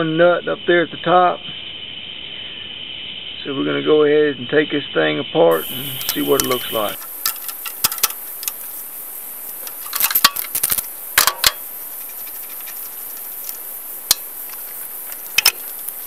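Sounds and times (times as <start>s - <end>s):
socket wrench clicking: 5.6s - 8.7s, 9.6s - 16.0s.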